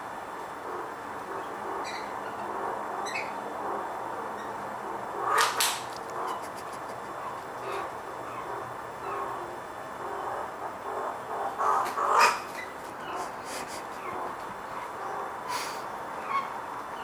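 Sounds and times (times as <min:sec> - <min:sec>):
magpie calls: 0:00.7 - 0:03.8, 0:04.4 - 0:17.0
harsh bird squawks: 0:05.2 - 0:16.6.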